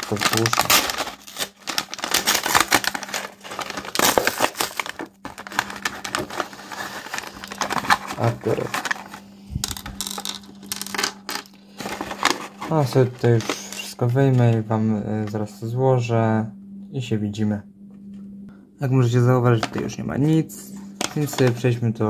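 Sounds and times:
plastic pieces clattering on desk: 0.0s - 12.8s
plastic packet crinkling: 0.0s - 14.0s, 21.0s - 21.6s.

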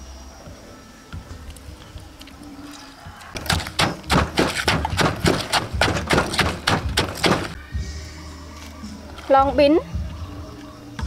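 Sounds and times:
wooden pestle pounding in mortar: 3.4s - 7.6s.

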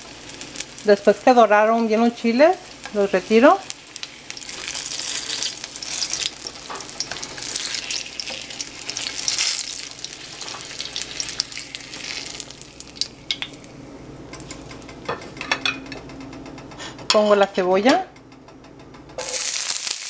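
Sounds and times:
chiles sizzling in hot oil: 0.0s - 15.5s, 19.2s - 20.0s.

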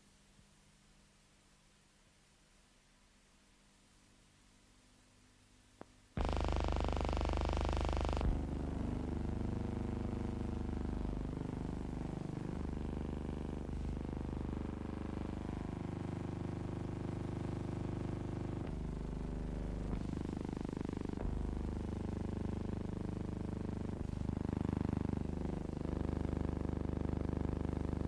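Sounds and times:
low hum and buzz: 5.8s - 28.0s.

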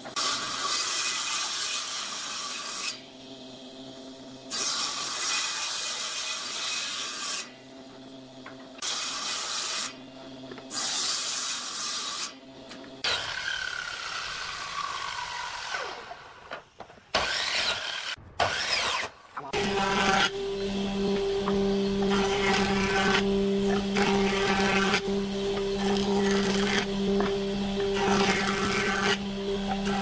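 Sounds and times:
miter saw cutting board: 0.0s - 30.0s
saw ripping wood: 13.0s - 16.3s, 17.1s - 30.0s
saw motor winding down: 17.2s - 30.0s
table saw motor hum: 17.2s - 30.0s.

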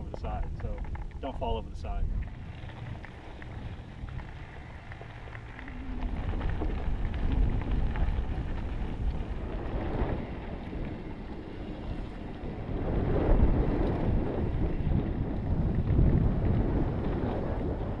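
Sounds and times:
small rattles and clicks: 0.0s - 12.5s
bike tyres crunching over dirt: 0.0s - 18.0s
wind rumbling on microphone: 0.0s - 18.0s.

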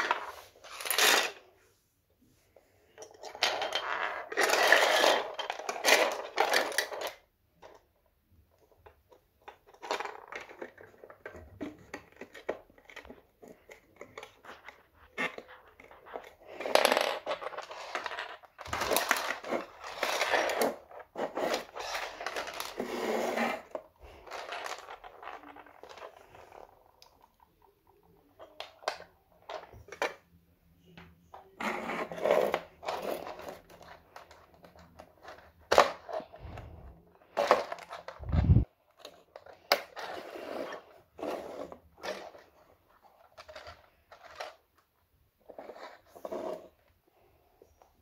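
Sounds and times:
plastic toy parts clattering on floor: 0.0s - 1.5s, 3.0s - 7.8s, 8.6s - 30.2s, 31.3s - 36.6s, 37.2s - 46.7s.

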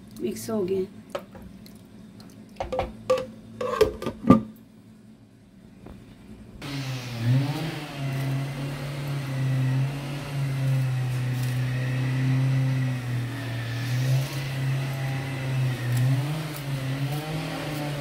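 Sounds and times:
garden machinery engine drone: 6.5s - 18.0s.

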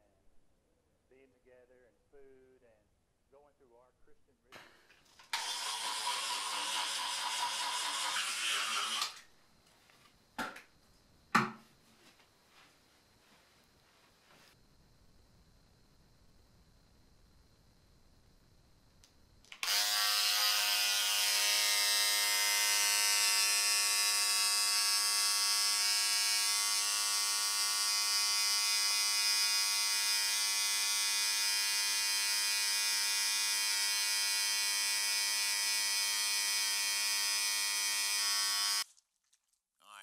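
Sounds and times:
electric toothbrush buzzing: 5.2s - 9.2s, 19.5s - 38.8s.

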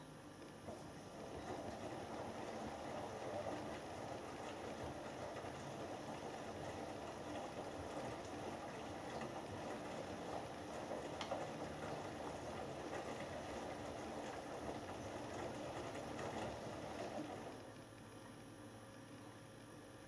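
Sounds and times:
washing machine drum turning: 0.6s - 17.6s
wet laundry sloshing: 0.7s - 17.6s.

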